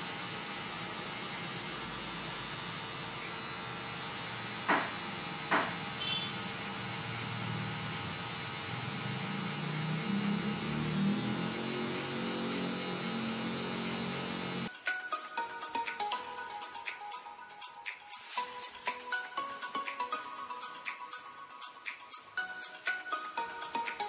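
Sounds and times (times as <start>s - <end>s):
hair clipper buzzing: 0.0s - 14.8s, 17.6s - 24.0s.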